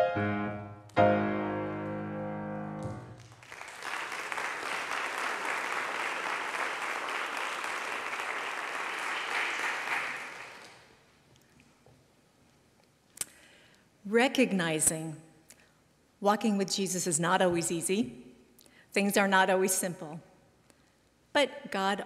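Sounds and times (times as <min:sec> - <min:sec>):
piano chord ringing: 0:00.0 - 0:03.2
congregation applauding: 0:03.0 - 0:11.0.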